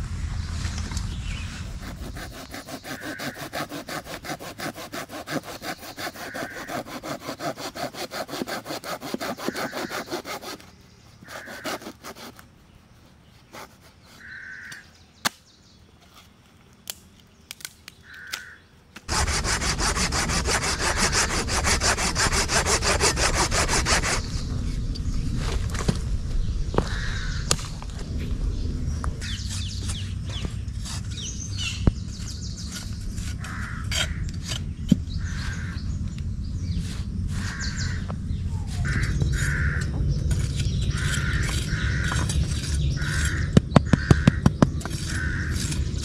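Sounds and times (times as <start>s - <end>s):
pruning saw cutting a branch: 1.6s - 10.7s, 19.1s - 24.5s.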